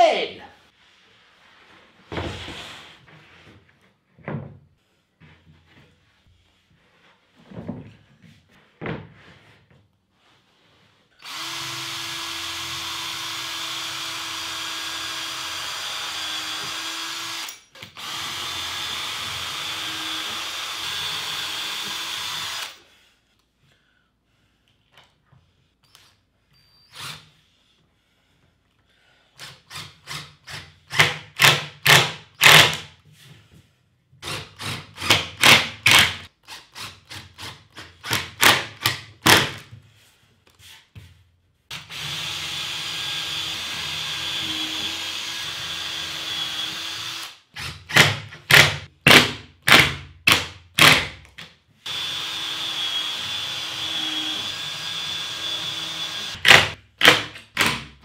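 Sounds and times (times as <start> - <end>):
drill driving screws into wood: 11.2 - 22.8, 26.9 - 27.4, 29.4 - 32.9, 34.2 - 39.7, 41.7 - 57.9.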